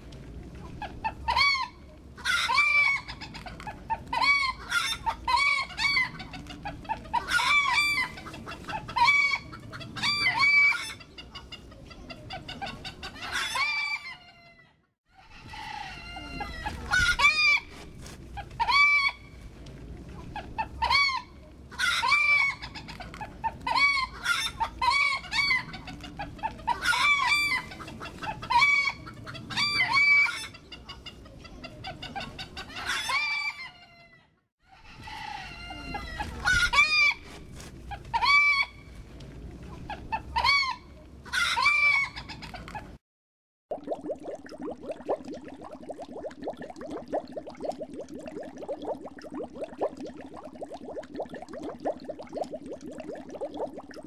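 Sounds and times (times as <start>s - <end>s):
hens clucking: 0.8s - 14.3s.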